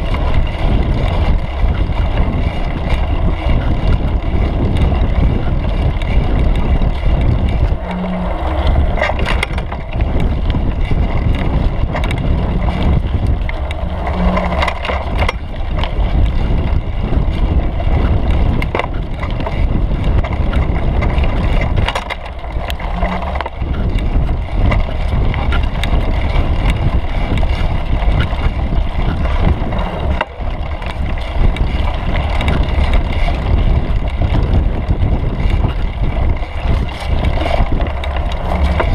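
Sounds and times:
bike clicks and rattles: 0.0 - 38.9
tyres rumbling on dirt: 0.0 - 38.9
wind on microphone: 0.0 - 38.9.

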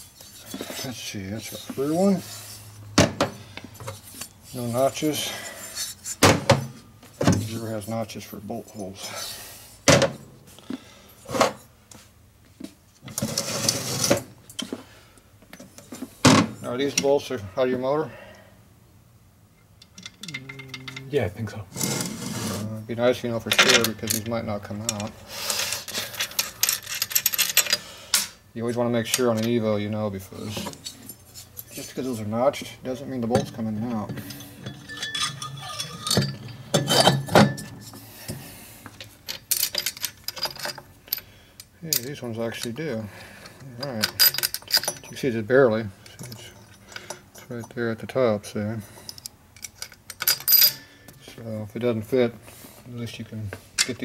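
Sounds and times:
metal rattling scrape: 13.1 - 14.3, 20.1 - 22.8, 33.2 - 38.0
metal clinks and knocks: 19.8 - 21.1, 25.9 - 27.8, 33.2 - 41.3, 43.8 - 45.3, 49.0 - 51.2
metal parts clunking on workbench: 33.2 - 38.4.

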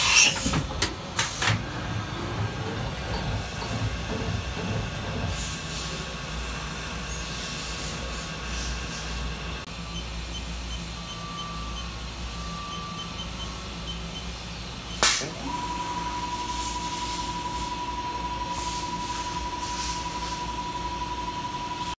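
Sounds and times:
machine low hum: 0.4 - 22.0
rotary table motor whine: 7.1 - 22.0.

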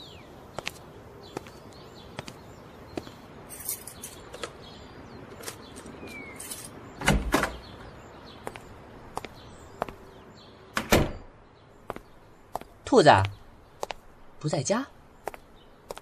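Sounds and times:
door shutting thud: 7.0 - 7.7, 10.8 - 11.3
door opening thud: 7.0 - 7.8, 10.7 - 11.3.

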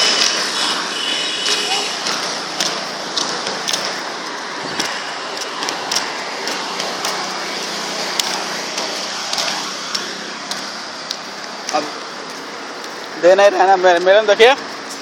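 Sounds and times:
traffic hum: 0.0 - 15.0
flip-flop footsteps on brick: 1.4 - 13.2.

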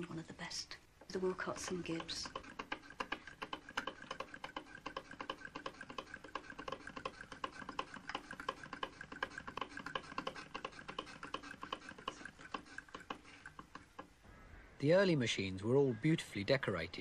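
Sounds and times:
sewing machine clicking: 1.2 - 14.2.

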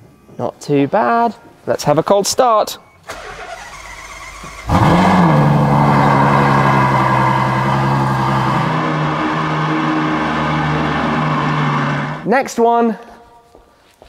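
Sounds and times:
car engine starting and revving: 3.1 - 12.3.

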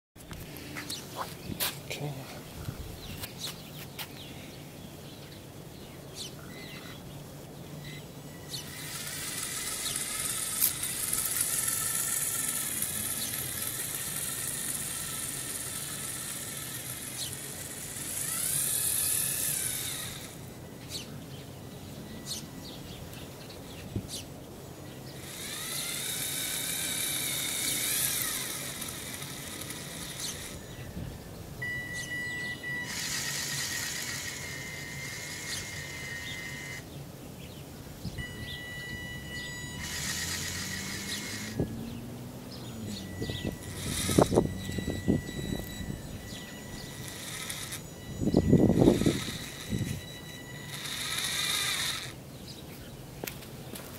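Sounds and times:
toy electric motors whining: 7.8 - 21.1, 25.0 - 36.9, 38.2 - 52.2.

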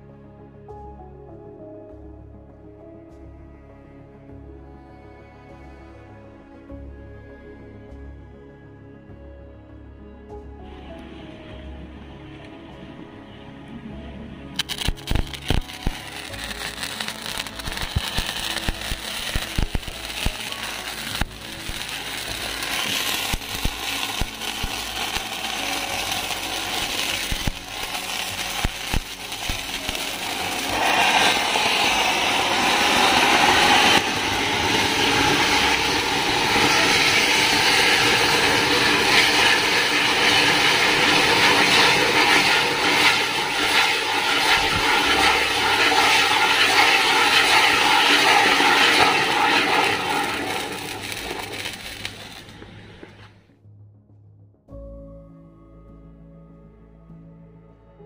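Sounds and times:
fireworks hissing: 14.6 - 53.4.

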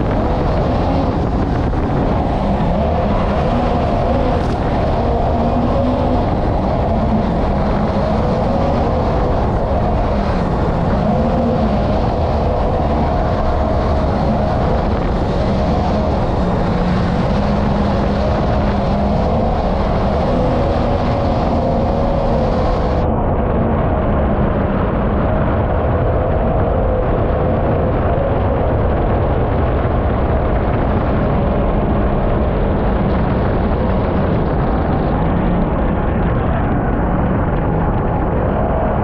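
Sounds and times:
rushing water: 0.0 - 23.0
boat engine at high throttle: 0.0 - 39.0
wind: 0.0 - 39.0.

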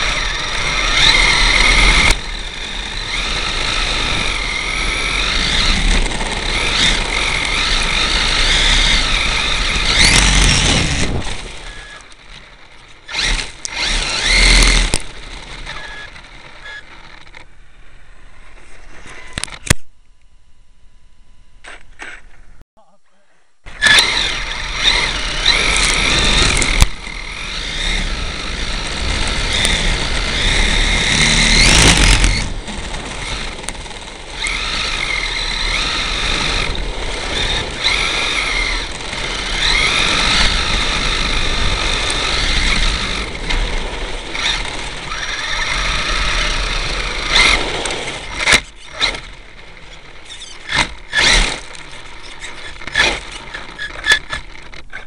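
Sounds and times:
electric toy truck motor whining: 0.0 - 17.5, 23.7 - 55.0
chassis rattling over ground: 0.0 - 19.8, 23.7 - 55.0
sharp clicks and knocks: 49.9 - 55.0.

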